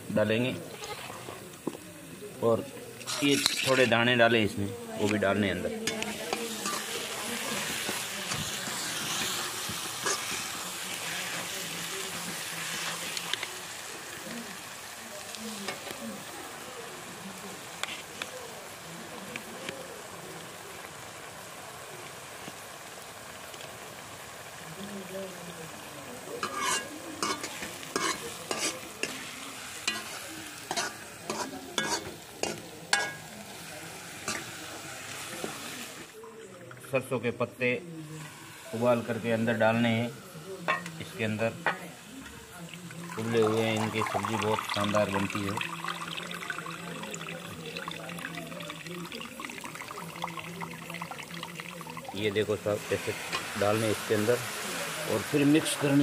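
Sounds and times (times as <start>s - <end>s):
food sizzling in oil: 0.0s - 56.0s
ladle stirring: 3.0s - 4.1s, 5.1s - 13.6s, 26.4s - 35.6s, 42.7s - 55.8s
ladle clicking on pan: 5.8s - 10.7s, 26.4s - 33.4s, 34.2s - 34.7s, 40.6s - 41.0s
ladle clanking against metal pan: 26.4s - 29.2s, 29.8s - 33.3s.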